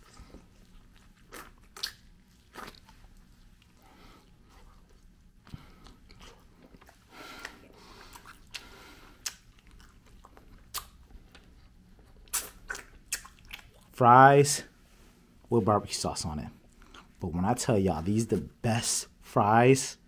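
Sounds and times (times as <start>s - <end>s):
person chewing wet mouth sounds: 0.0s - 14.0s, 16.6s - 17.2s
sharp mouth clicks: 8.2s - 9.5s, 10.7s - 11.0s, 12.3s - 13.7s.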